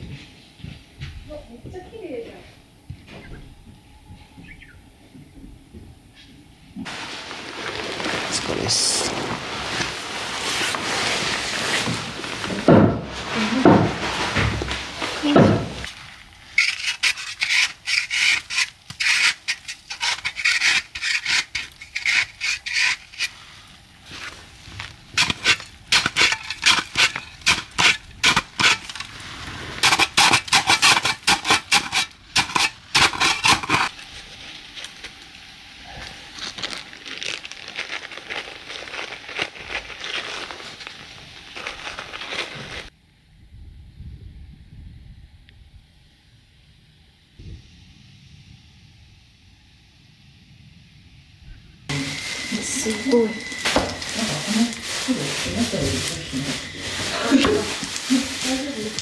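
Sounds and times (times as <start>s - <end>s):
hands scuffing in snow: 6.9s - 15.9s, 51.9s - 59.0s
snow shovel scraping snow: 6.9s - 33.9s, 51.9s - 59.0s.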